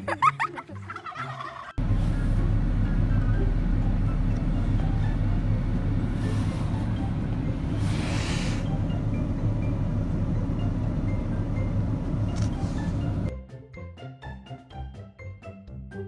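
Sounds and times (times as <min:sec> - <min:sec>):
low rumble of vehicle noise: 0:01.0 - 0:13.3
short rushing hiss: 0:07.7 - 0:08.7.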